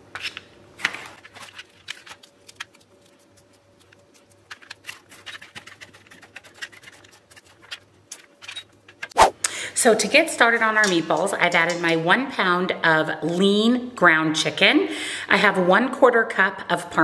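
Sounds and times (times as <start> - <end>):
small clicks and scrapes: 0.2 - 9.2.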